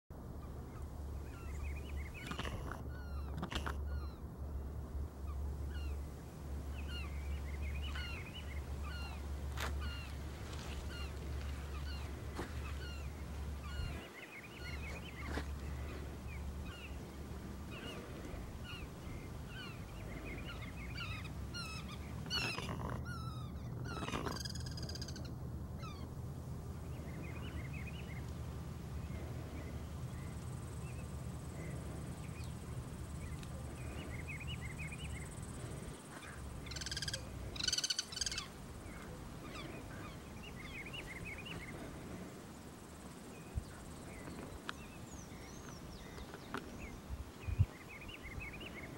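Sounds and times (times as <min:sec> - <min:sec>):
steady low rumble: 0:00.1 - 0:48.9
harsh animal call sequences: 0:17.7 - 0:26.1
high chirping animal calls: 0:17.7 - 0:26.1, 0:33.0 - 0:41.8.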